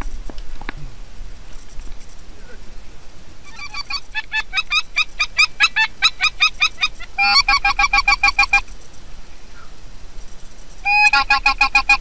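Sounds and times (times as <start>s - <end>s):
geese honking: 3.4s - 8.7s, 10.8s - 12.0s.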